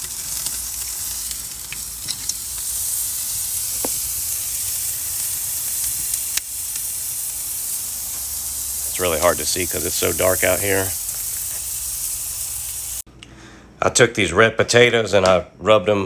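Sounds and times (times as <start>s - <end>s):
faint crackles and pops: 0.0s - 9.3s
steak sizzling on a grill: 0.0s - 13.0s.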